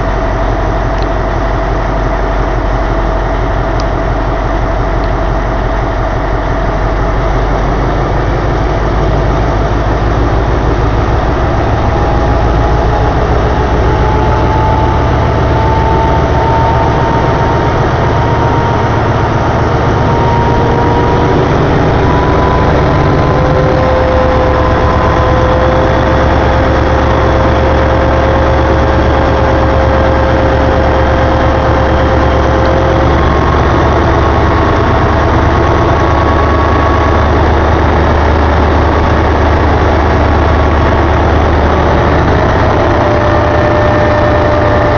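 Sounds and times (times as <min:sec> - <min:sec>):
faint rising whine: 0:00.0 - 0:44.9
locomotive engine idling: 0:00.0 - 0:44.9.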